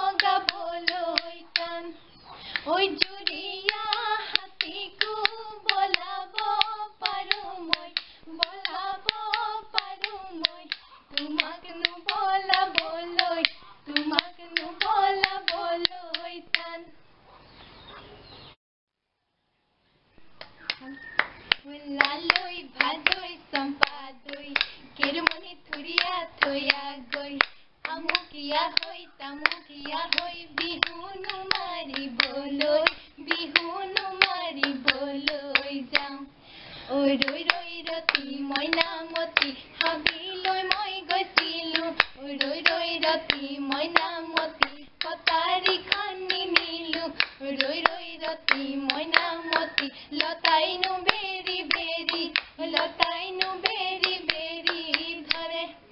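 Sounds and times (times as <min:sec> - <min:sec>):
hand claps: 0:00.0 - 0:01.7, 0:02.5 - 0:16.7, 0:20.4 - 0:36.1, 0:37.2 - 0:55.6
women singing together: 0:00.0 - 0:17.0, 0:20.7 - 0:55.9
bamboo clapper clacking: 0:03.0 - 0:16.7, 0:37.2 - 0:55.4.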